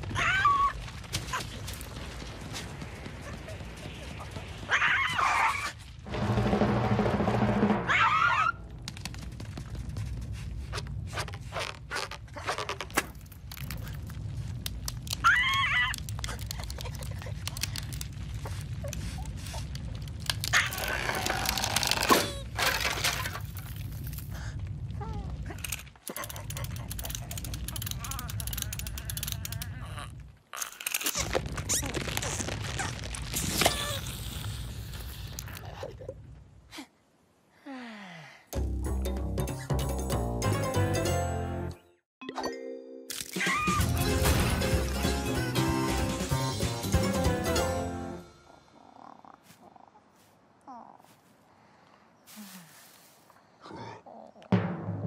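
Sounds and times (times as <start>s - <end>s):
low rumble: 5.8s - 11.5s
creaks and crackling clicks: 8.6s - 36.4s.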